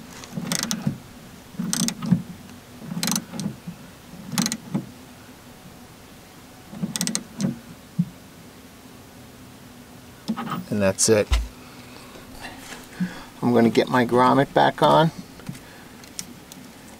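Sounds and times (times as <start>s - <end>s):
socket ratchet clicking: 0.5s - 0.8s, 1.7s - 2.0s, 3.0s - 3.2s, 4.4s - 4.6s, 7.0s - 7.2s.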